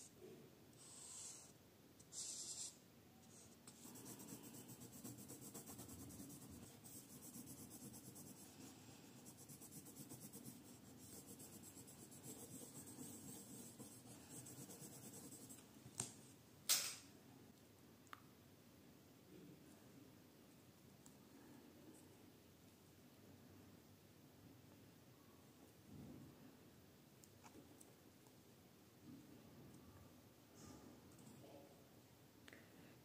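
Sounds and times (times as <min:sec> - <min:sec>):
marker stroke: 0:00.8 - 0:15.6
pencil scratching on paper: 0:02.1 - 0:15.6.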